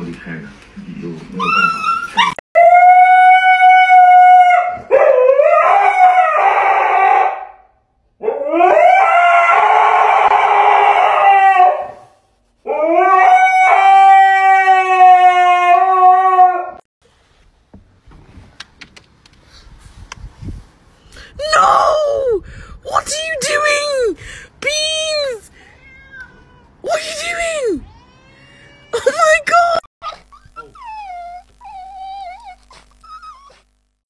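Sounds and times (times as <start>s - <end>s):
dog howling: 1.4s - 7.5s, 8.2s - 12.0s, 12.7s - 16.8s, 30.0s - 33.6s.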